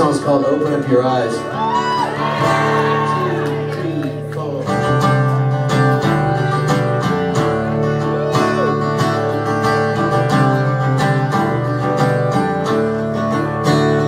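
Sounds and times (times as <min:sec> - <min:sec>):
acoustic guitar strumming: 0:00.0 - 0:14.0.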